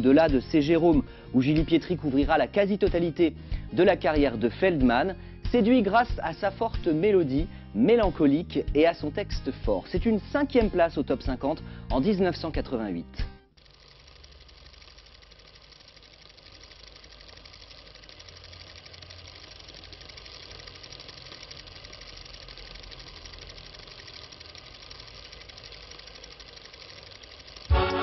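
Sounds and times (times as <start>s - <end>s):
fast mechanical rattle: 13.5s - 28.0s
loud music: 27.7s - 28.0s.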